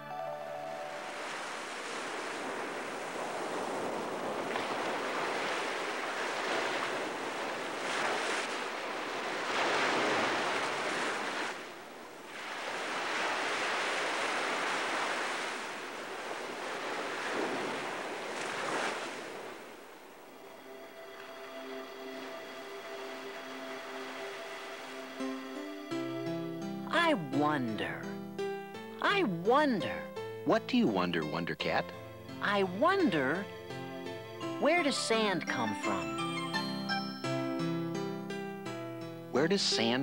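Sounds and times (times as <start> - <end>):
ocean surf breaking: 0.8 - 26.1.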